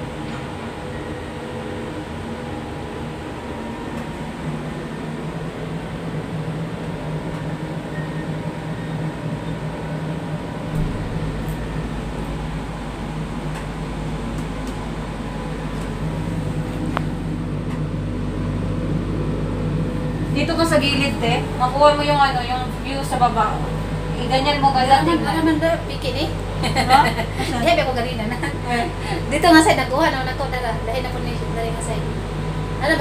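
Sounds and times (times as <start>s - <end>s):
gondola mechanical hum and whir: 0.0s - 33.0s
deep rumble: 8.5s - 33.0s.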